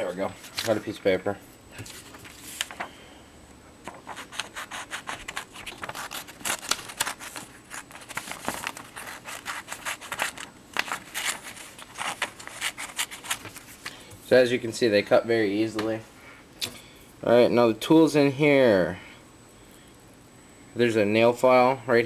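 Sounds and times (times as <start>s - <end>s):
small scissors snipping paper: 4.2s - 13.4s.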